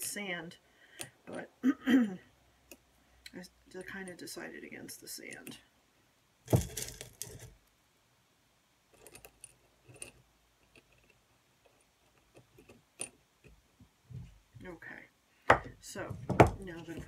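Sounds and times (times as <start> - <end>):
stones clinking against glass dish: 6.5 - 7.5.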